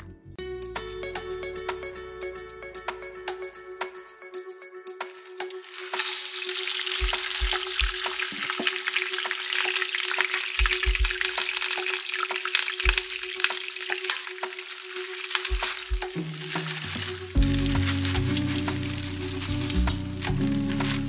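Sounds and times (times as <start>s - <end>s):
food sizzling in a pan: 5.0s - 21.0s.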